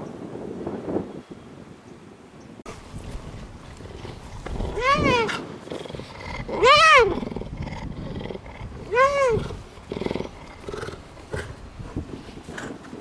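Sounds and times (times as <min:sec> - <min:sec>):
cougar calling: 0:03.6 - 0:13.0.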